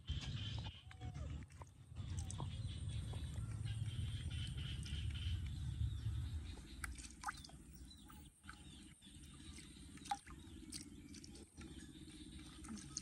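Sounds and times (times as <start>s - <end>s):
water splashing in plastic tub: 6.5s - 7.8s, 8.4s - 13.0s.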